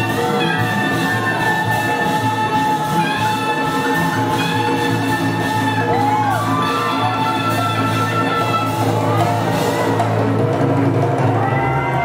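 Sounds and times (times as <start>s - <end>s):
bass and percussion: 0.0s - 12.0s
horns and saxophone chords: 0.0s - 12.0s
latin big band playing jazz: 0.0s - 12.0s.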